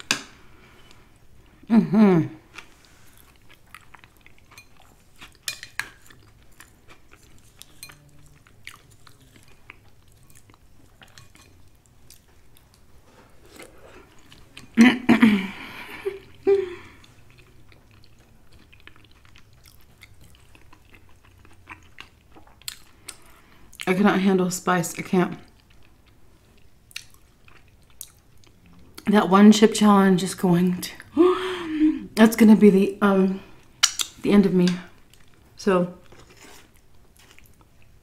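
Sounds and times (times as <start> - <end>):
chewing: 2.5 - 14.8, 16.2 - 23.9, 25.4 - 29.1, 35.0 - 38.0.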